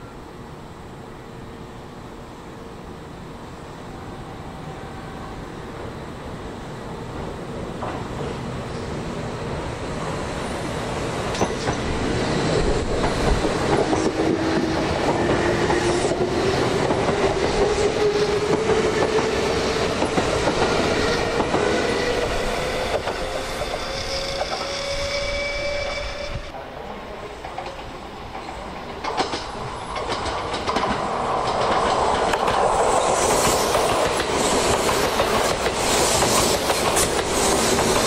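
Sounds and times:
wheels clacking over rail joints: 27.4 - 38.0.

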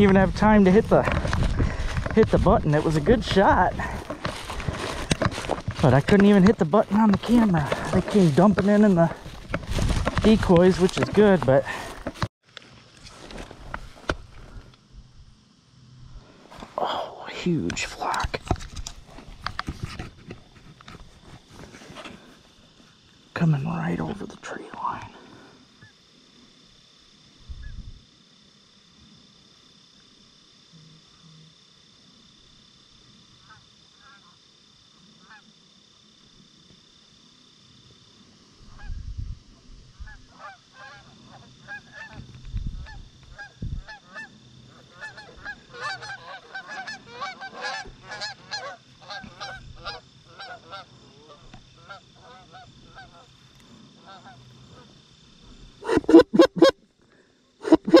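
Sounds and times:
geese honking: 40.1 - 42.2, 42.9 - 53.3, 55.8 - 56.8, 57.6 - 58.0
goose call honks: 55.8 - 56.8, 57.6 - 58.0.

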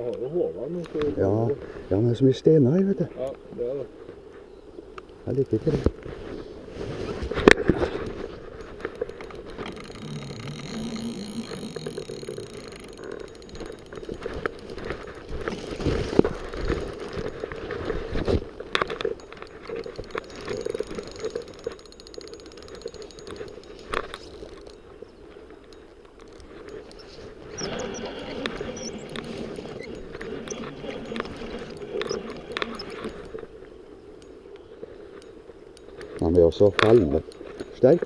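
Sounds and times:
leaves and branches brushing: 5.6 - 12.3, 13.8 - 21.5.

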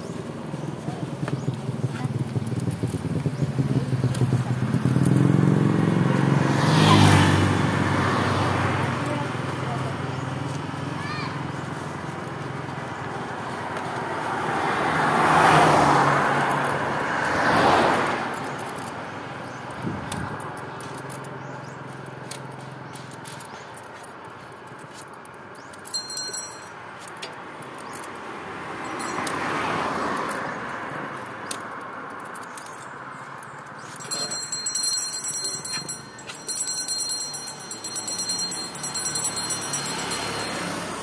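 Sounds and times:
vehicles passing on road: 0.0 - 41.0
short sharp clinks: 31.2 - 40.7.

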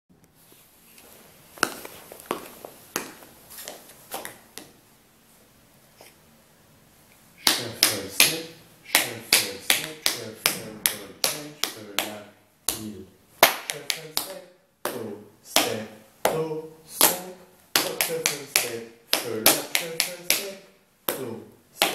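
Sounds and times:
tap shoes tapping on hard floor: 1.6 - 4.7.

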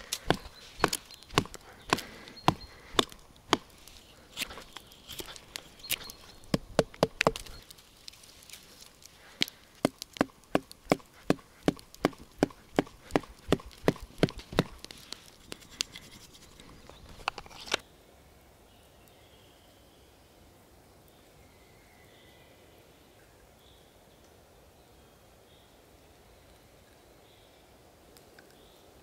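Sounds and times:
knife cutting wooden stick: 0.0 - 7.7, 9.4 - 17.8.

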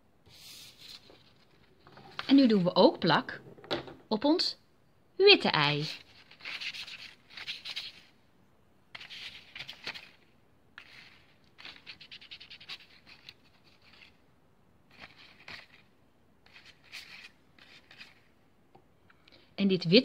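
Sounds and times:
brush scratching on paper: 5.8 - 8.1, 10.8 - 14.2, 14.9 - 18.4.

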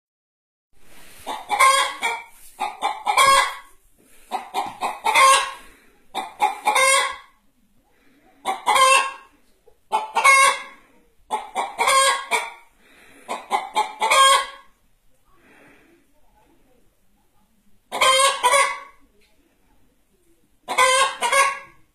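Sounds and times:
hen cackling: 1.2 - 7.4, 8.4 - 9.3, 9.9 - 12.7, 13.3 - 14.7, 17.9 - 19.0, 20.7 - 21.8.

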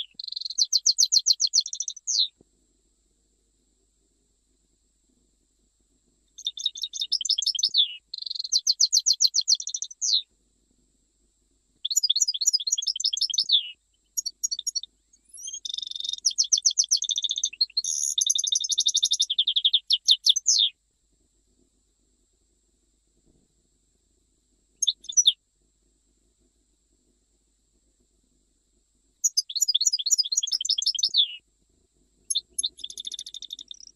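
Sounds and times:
goldfinch singing trills: 0.0 - 2.3, 6.4 - 10.2, 11.8 - 20.7, 24.8 - 25.4, 29.2 - 31.4, 32.3 - 33.9.

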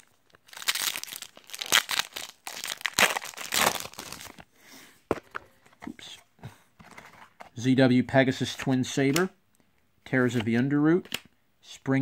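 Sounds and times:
foil pack tearing and crinkling: 0.5 - 4.4.

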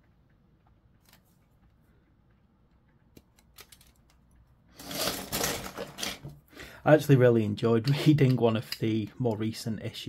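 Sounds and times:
scraping rustling noise: 4.8 - 6.3.

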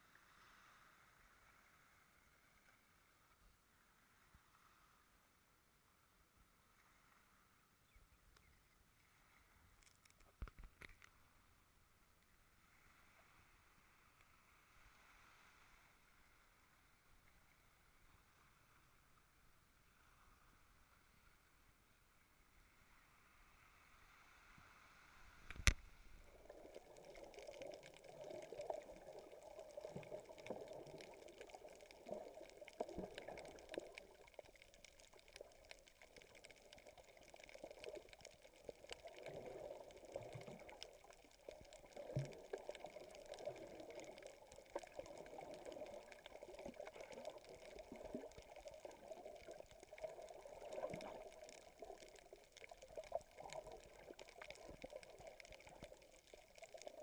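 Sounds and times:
faint tiny ticks: 9.6 - 11.2, 25.4 - 25.9, 26.5 - 57.0
muffled underwater sloshing: 25.3 - 57.0.

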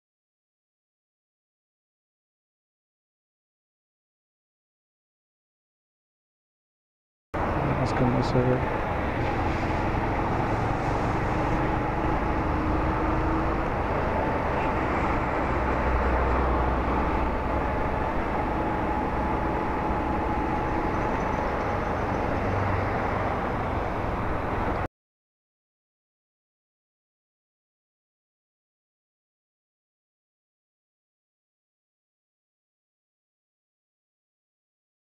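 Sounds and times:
road and wind noise: 7.4 - 24.9
thin steady whine: 7.4 - 24.9.

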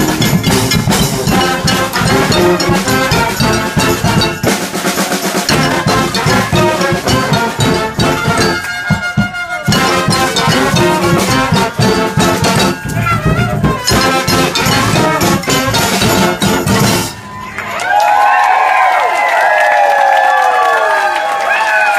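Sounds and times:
brass band with drums: 0.0 - 17.4
crowd whooping and cheering: 17.2 - 21.9.

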